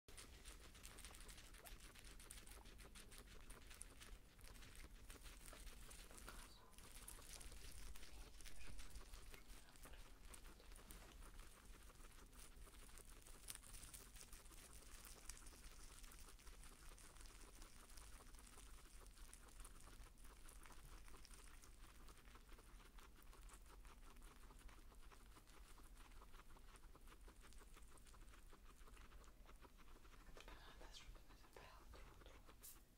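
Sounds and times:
guinea pigs chewing greens: 0:00.1 - 0:32.9.

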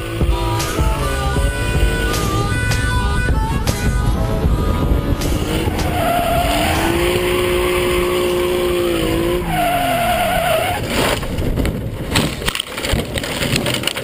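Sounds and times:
pitched whine: 0:00.0 - 0:11.4
tyres skidding and squealing: 0:00.0 - 0:12.4
car engine running hard: 0:00.0 - 0:12.5.

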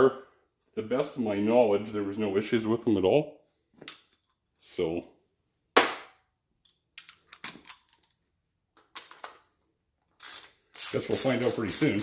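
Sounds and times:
ratchet clicking: 0:10.2 - 0:12.0.

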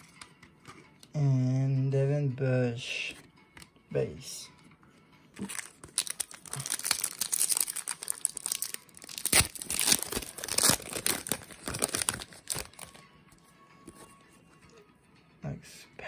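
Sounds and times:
foil wrapper crackling and tearing: 0:05.4 - 0:13.0.

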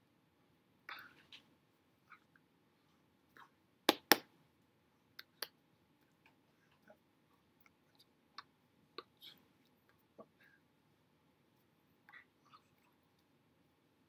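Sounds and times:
hands slapping together: 0:03.9 - 0:04.3
soft mouth clicks and smacks: 0:05.2 - 0:10.4.

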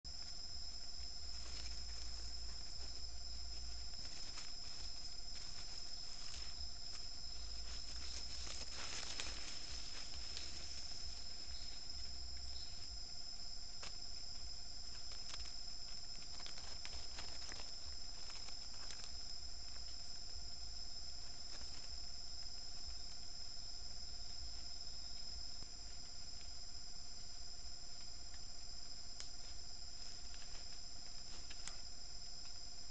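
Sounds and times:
crickets trilling: 0:00.1 - 0:32.9
rustling in dry leaves: 0:01.2 - 0:12.9, 0:14.8 - 0:19.3.

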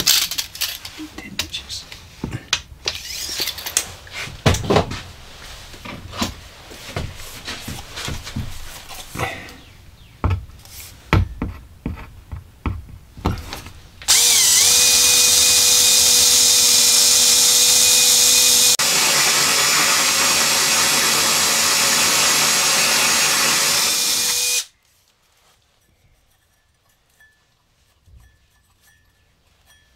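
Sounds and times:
cordless drill whining: 0:02.9 - 0:03.6, 0:14.1 - 0:24.7.

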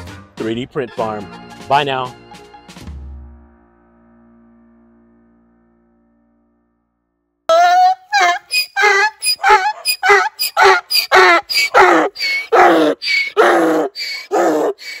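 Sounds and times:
donkey braying: 0:07.5 - 0:15.0.

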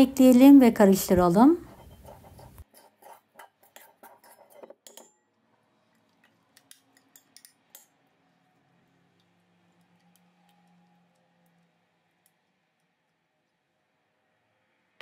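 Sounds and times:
spoon clinking on bowls: 0:01.8 - 0:05.1, 0:06.5 - 0:07.9.

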